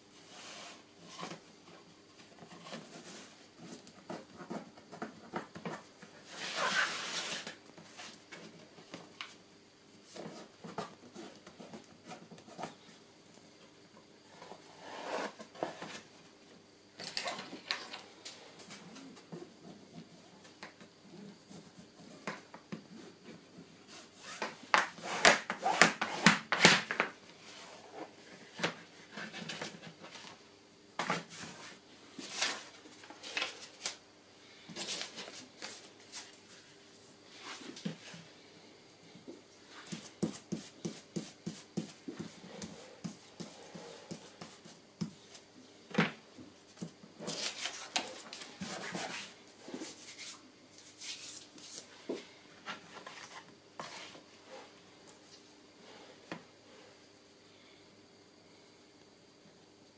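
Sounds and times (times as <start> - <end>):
paper and board rustling: 31.0 - 34.0, 46.8 - 51.9, 52.6 - 54.2
craft knife scraping board: 52.9 - 54.2.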